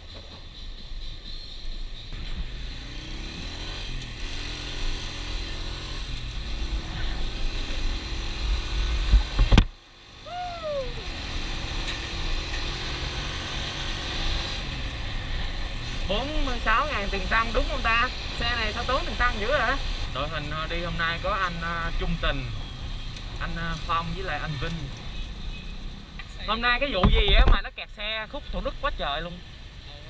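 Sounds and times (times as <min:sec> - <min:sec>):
traffic and motorbike engines rumbling: 0:00.0 - 0:30.0.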